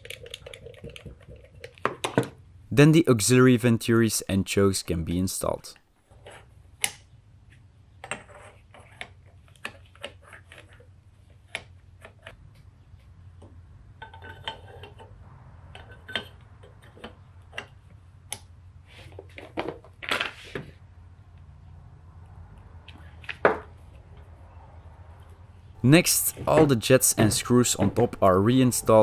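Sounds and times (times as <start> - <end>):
low steady hum: 24.1 - 29.0.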